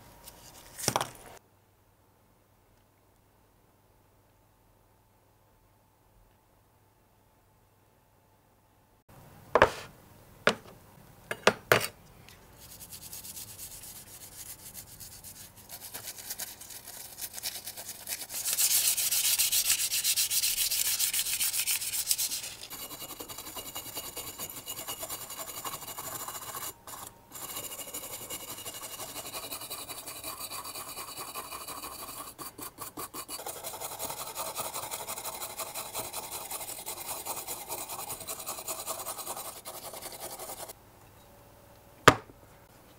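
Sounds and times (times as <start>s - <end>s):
hand brush scrubbing metal: 12.6s - 40.7s.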